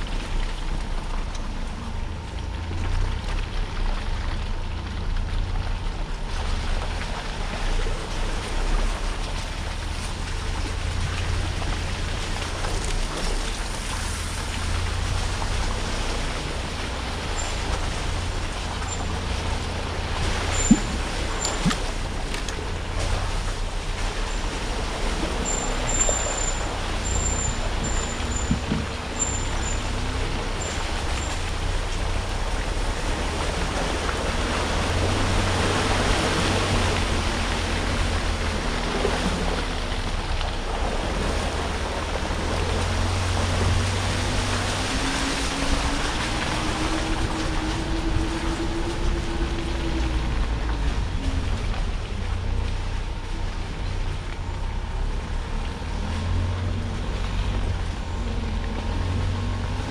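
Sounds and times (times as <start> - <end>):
truck bouncing over rocks: 0.0 - 47.0
off-road vehicle engine rumble: 0.0 - 59.9.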